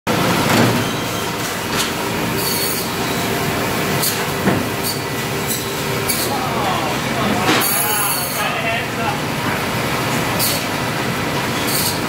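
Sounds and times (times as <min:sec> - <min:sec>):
bandsaw squealing: 0:02.3 - 0:03.3, 0:07.6 - 0:08.6.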